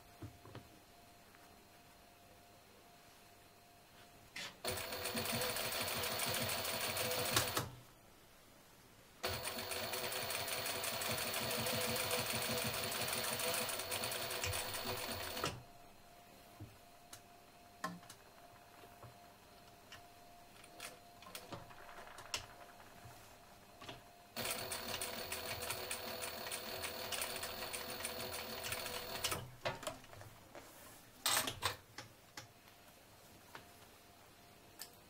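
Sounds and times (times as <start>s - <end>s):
sewing machine stitching: 4.6s - 7.7s, 9.2s - 15.6s, 24.4s - 29.5s
fabric rustling: 30.3s - 31.2s.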